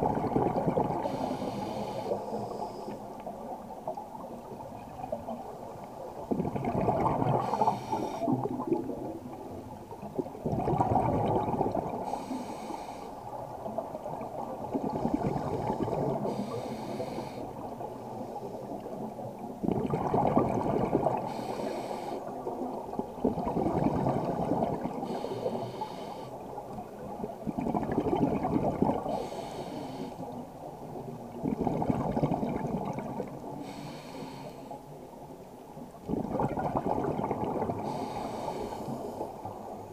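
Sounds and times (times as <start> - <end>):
underwater bubbles gurgling: 0.0 - 39.9
regulator hiss: 1.0 - 3.0, 16.3 - 17.4, 25.1 - 26.4, 29.1 - 30.3.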